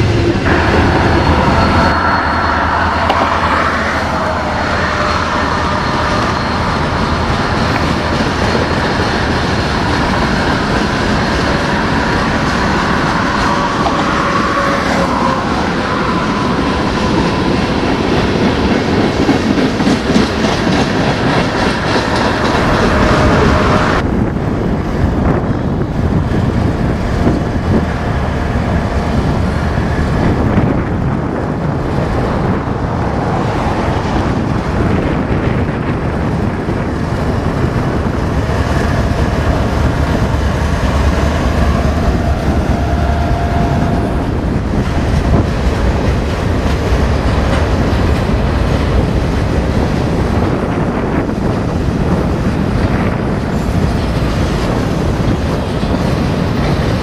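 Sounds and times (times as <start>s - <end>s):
faint wheel squeal: 0.5s - 7.2s
train wheels clacking over rail joints: 16.0s - 24.0s.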